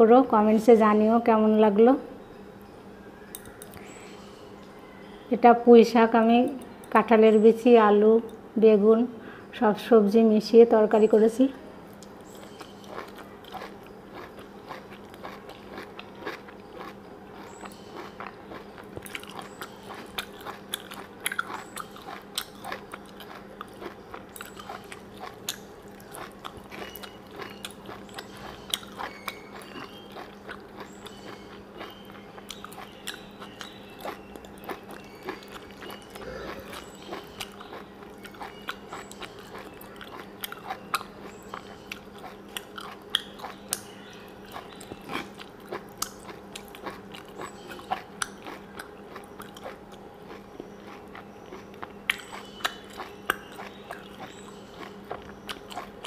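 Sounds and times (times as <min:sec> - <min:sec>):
faint steady hum: 0:00.0 - 0:56.0
wet chewing: 0:11.9 - 0:56.0
mouth clicks and smacks: 0:12.0 - 0:56.0.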